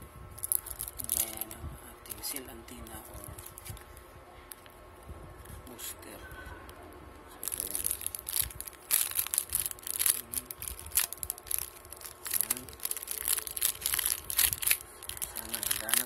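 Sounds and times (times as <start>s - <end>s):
plastic packet and paper crinkling: 0.4s - 4.0s, 7.4s - 16.0s.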